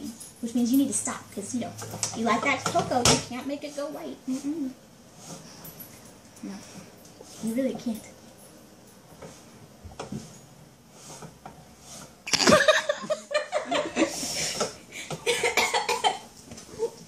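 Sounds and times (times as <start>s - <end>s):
woman laughing loudly: 12.4s - 14.2s, 15.2s - 16.2s.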